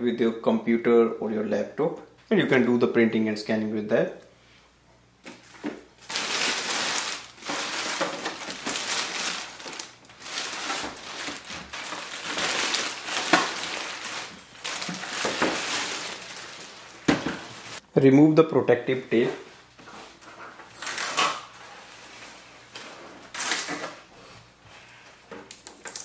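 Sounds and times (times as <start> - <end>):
plastic bag crinkling: 6.0 - 17.8.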